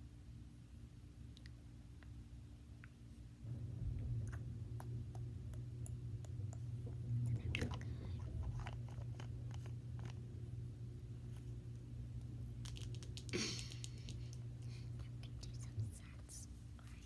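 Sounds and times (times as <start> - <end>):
low hum: 0.0 - 17.0
child chewing: 4.2 - 10.2
plastic package crackling: 12.6 - 14.2.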